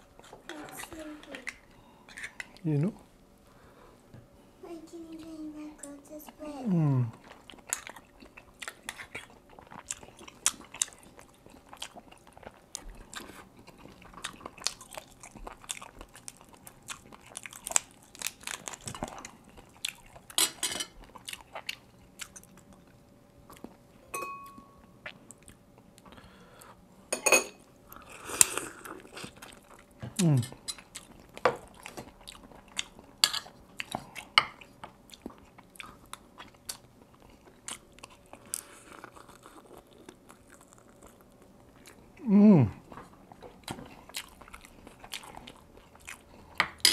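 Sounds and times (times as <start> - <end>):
person chewing and biting: 7.2 - 20.4, 21.0 - 22.9, 28.0 - 42.1, 42.8 - 46.8.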